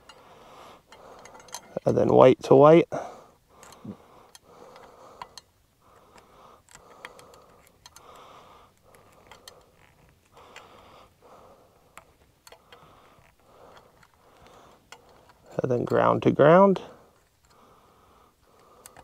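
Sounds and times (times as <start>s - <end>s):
wire nuts clicking and scratching: 0.0s - 2.2s, 3.5s - 17.7s, 18.4s - 19.0s
handling rustle: 4.6s - 17.6s.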